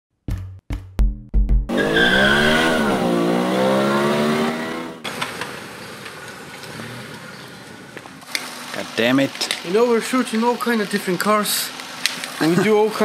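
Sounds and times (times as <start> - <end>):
car engine revving: 1.7 - 5.3
outdoor background noise: 1.7 - 13.0.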